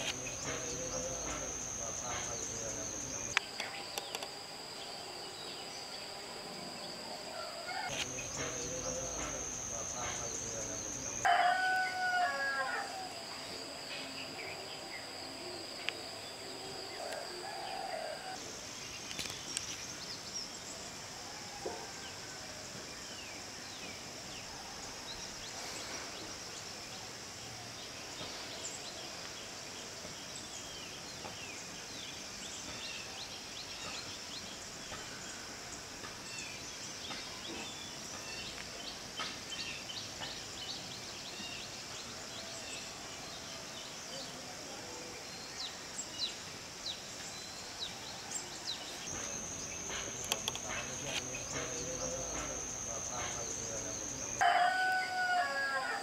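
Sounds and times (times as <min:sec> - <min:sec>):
high insect drone: 0:00.0 - 0:56.0
rooster crowing: 0:10.3 - 0:13.2, 0:17.0 - 0:18.4, 0:54.4 - 0:56.0.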